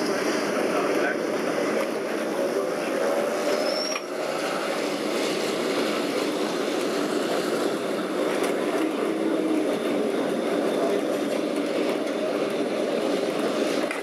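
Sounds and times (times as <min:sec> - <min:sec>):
electric tram rumbling on rails: 0:00.0 - 0:14.0
high squeal: 0:03.3 - 0:04.8.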